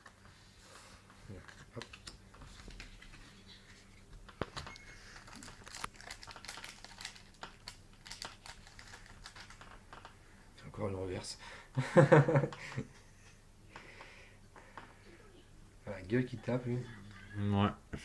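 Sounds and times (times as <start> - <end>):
plastic wrapper crinkling: 4.4 - 10.2.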